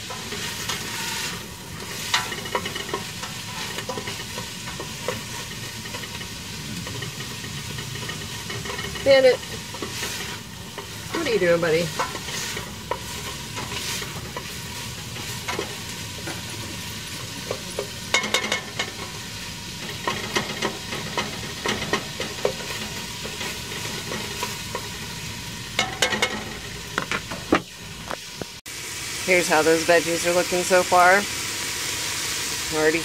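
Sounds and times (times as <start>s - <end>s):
vegetables sizzling: 0.0s - 33.0s
spoon scraping a pot: 0.1s - 11.0s, 11.9s - 15.7s.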